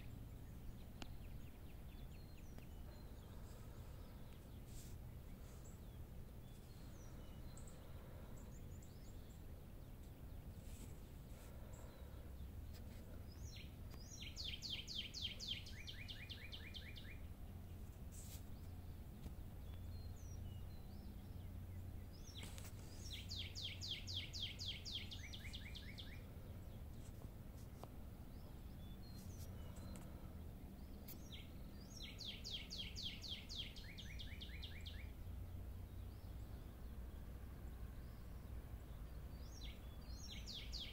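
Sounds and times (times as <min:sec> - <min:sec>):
steady low hum: 0:00.0 - 0:32.5
songbird trilling: 0:22.2 - 0:26.2.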